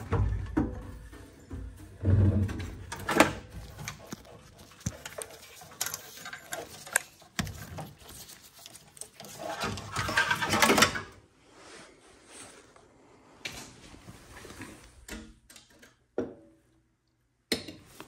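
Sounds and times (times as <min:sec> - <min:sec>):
metal parts clinking and scraping: 0:02.8 - 0:11.0.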